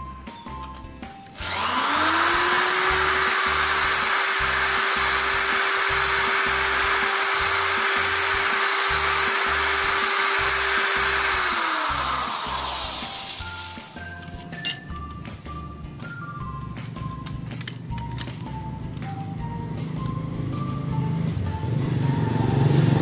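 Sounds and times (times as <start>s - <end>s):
music with a steady beat: 0.0s - 23.0s
electric drill spinning: 1.3s - 14.8s.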